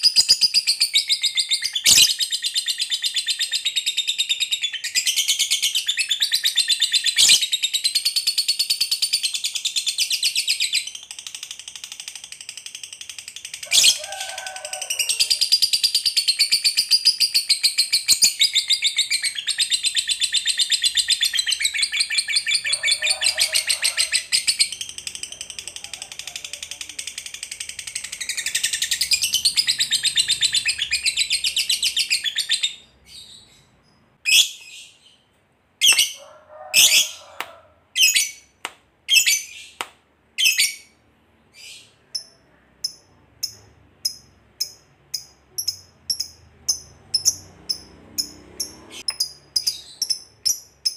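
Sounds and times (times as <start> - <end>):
lovebird chattering trill: 41.6 - 50.9.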